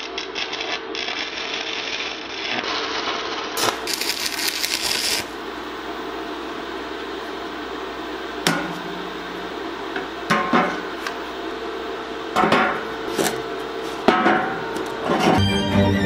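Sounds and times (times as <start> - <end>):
hammer striking steel: 14.0 - 15.4.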